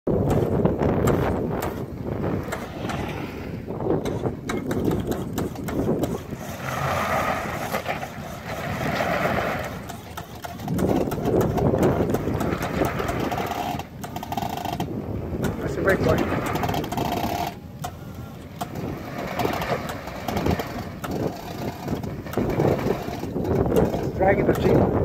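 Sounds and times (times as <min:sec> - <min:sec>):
wind on microphone: 0:00.1 - 0:25.0
vehicle engine revving: 0:00.2 - 0:25.0.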